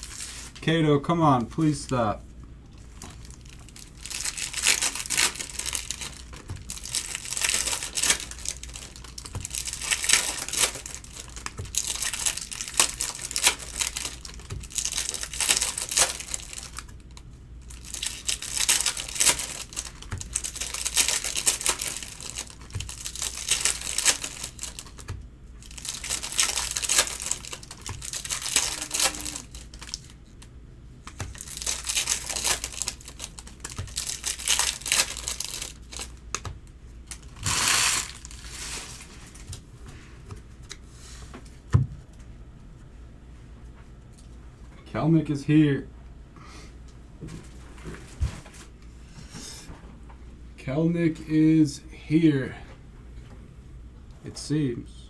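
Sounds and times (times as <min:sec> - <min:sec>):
foil wrappers tearing and crinkling: 0:00.0 - 0:00.6, 0:02.9 - 0:30.5, 0:31.1 - 0:39.6.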